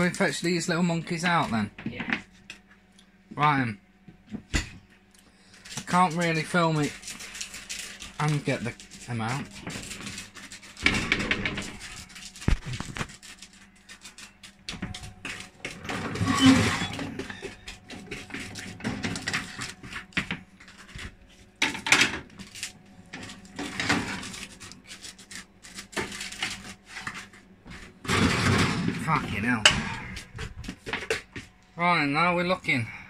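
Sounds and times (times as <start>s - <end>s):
baking tray and utensils clattering: 5.8s - 22.5s, 23.1s - 31.4s.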